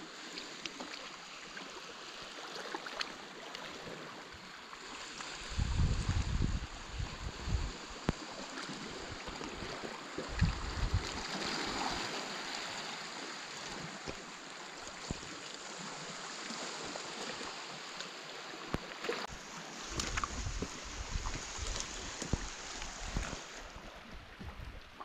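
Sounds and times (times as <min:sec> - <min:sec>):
water rushing: 0:00.0 - 0:25.0
wind gusts on microphone: 0:05.4 - 0:08.2, 0:09.0 - 0:11.8, 0:19.3 - 0:25.0.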